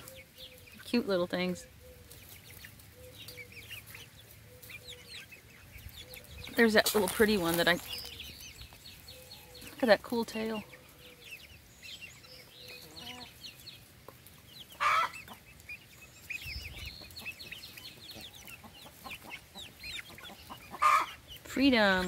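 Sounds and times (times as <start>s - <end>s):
chicks cheeping: 0.0s - 22.0s
chicken squawk: 12.7s - 13.4s, 14.7s - 15.5s, 18.1s - 21.3s.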